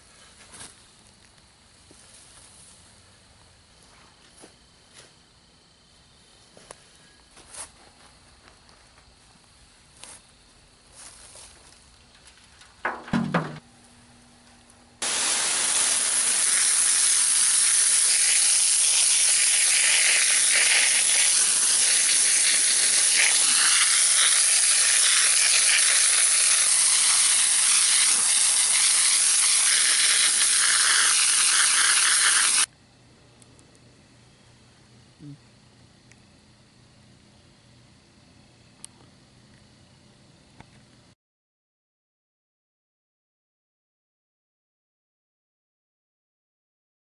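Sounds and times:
hose water jet spattering: 0:15.0 - 0:32.7.

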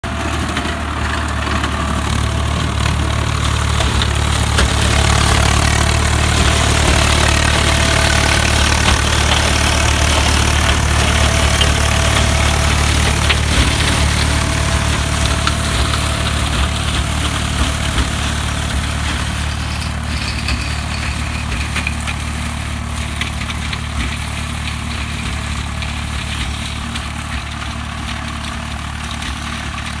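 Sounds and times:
tractor diesel engine running: 0:00.0 - 0:30.0
mulcher chopping stalks: 0:01.4 - 0:20.0.

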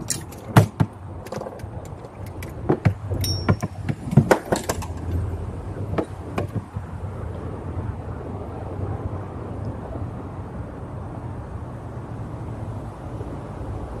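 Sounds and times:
fishing tackle clicking and knocking: 0:00.0 - 0:05.2.

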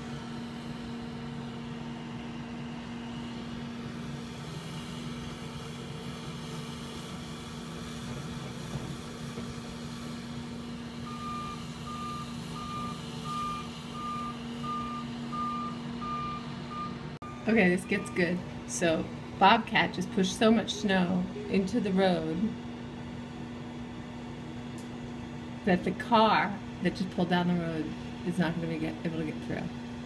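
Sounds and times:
loader engine droning: 0:00.0 - 0:30.0
reversing alarm beeping: 0:11.0 - 0:18.4, 0:20.5 - 0:22.5.

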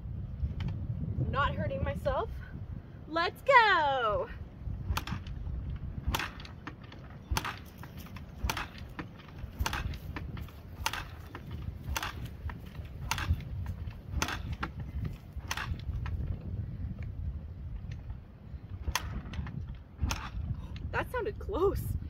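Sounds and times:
kick lever clacking: 0:06.0 - 0:16.2.

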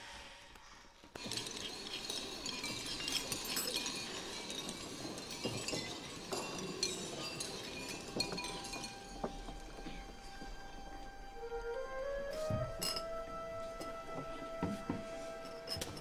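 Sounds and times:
spoons clinking against bowls: 0:01.2 - 0:10.4, 0:12.8 - 0:13.2, 0:15.4 - 0:16.0.

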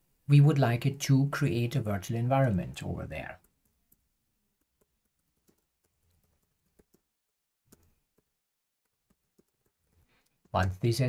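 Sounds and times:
keystrokes on computer keyboard: 0:04.6 - 0:10.6.

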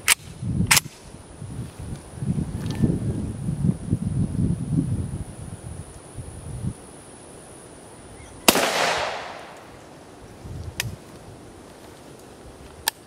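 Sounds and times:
gunshot echo: 0:08.5 - 0:09.7
rifle shot: 0:08.5 - 0:09.7.

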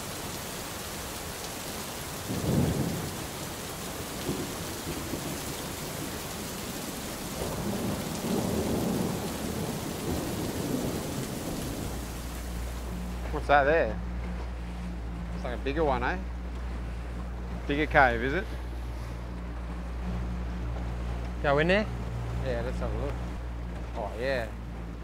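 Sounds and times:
rain falling on sea: 0:00.0 - 0:25.0
thunder rumbling: 0:02.3 - 0:13.2.

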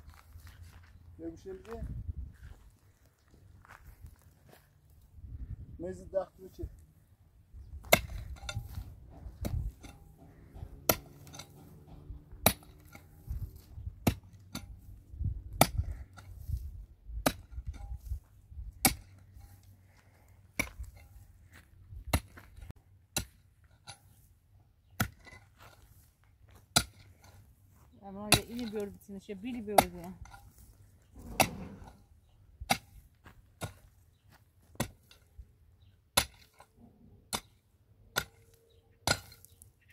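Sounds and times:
hand tool striking hard material: 0:07.8 - 0:14.9, 0:17.2 - 0:18.2, 0:18.8 - 0:19.6, 0:26.7 - 0:27.3, 0:28.2 - 0:32.0, 0:34.8 - 0:35.3, 0:36.1 - 0:36.7, 0:37.3 - 0:39.6.

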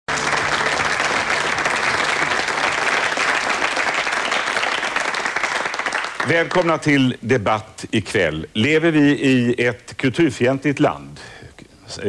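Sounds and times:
audience applauding: 0:00.1 - 0:06.9.

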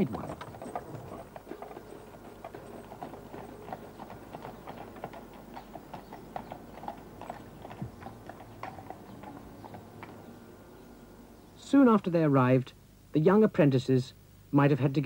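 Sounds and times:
horse hooves clip-clopping: 0:00.0 - 0:11.1.

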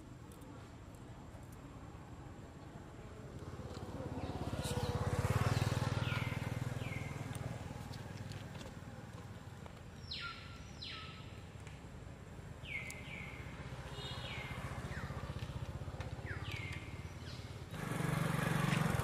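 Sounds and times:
motorbike passing: 0:03.3 - 0:11.0, 0:12.5 - 0:19.0.

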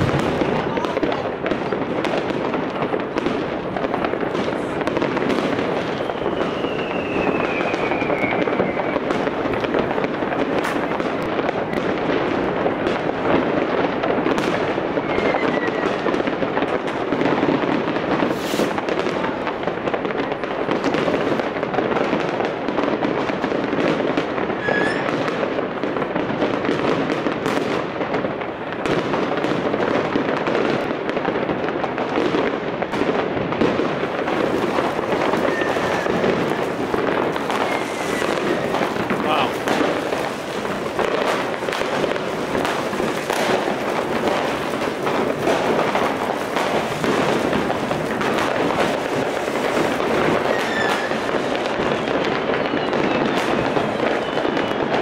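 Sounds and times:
fireworks crackling and banging: 0:00.0 - 0:55.0
whistling rockets: 0:04.1 - 0:13.2, 0:14.3 - 0:16.3, 0:17.1 - 0:19.0, 0:23.2 - 0:25.5, 0:31.9 - 0:55.0.

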